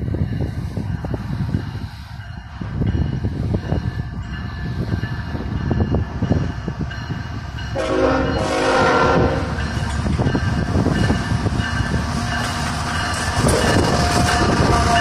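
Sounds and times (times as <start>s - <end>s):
train rumbling: 0.0s - 15.0s
wind buffeting microphone: 0.0s - 15.0s
train horn blast: 7.7s - 9.6s.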